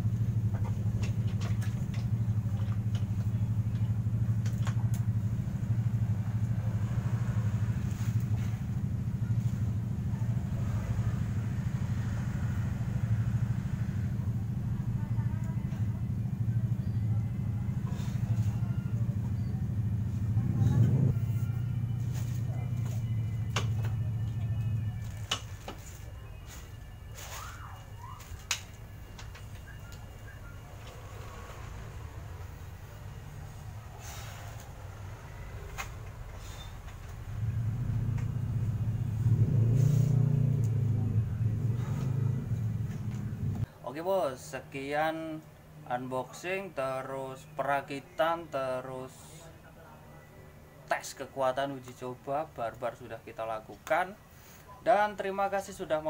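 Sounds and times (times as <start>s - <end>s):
low motor rumble with flutter: 0.0s - 43.7s
low steady hum: 0.0s - 55.8s.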